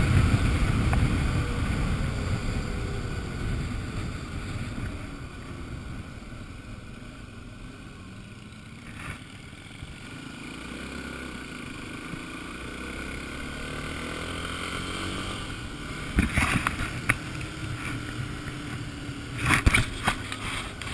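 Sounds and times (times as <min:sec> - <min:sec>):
wind rumbling on microphone: 0:00.0 - 0:07.8, 0:14.1 - 0:20.9
motorcycle engine running: 0:00.0 - 0:20.9.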